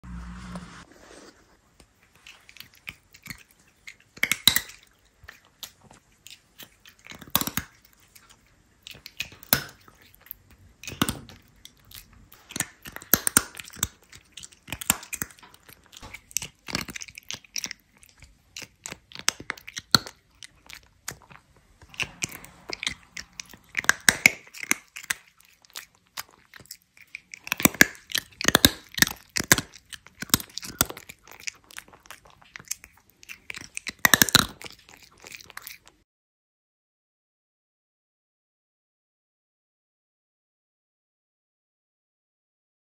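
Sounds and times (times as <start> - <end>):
cat crunching and chewing: 1.0 - 36.0.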